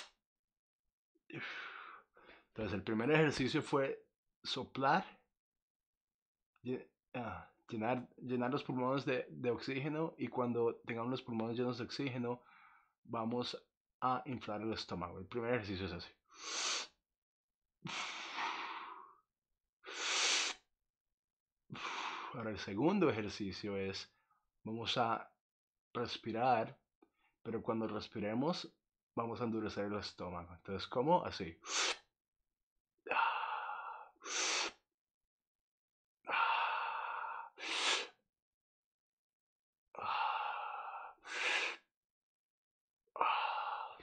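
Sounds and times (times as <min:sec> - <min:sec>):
man breathing deeply: 0:01.3 - 0:02.5, 0:17.9 - 0:19.2, 0:19.8 - 0:20.6, 0:21.7 - 0:22.4, 0:33.1 - 0:34.8, 0:36.3 - 0:38.2, 0:40.0 - 0:41.9, 0:43.2 - 0:44.0
sharp breath hiss: 0:19.9 - 0:20.6.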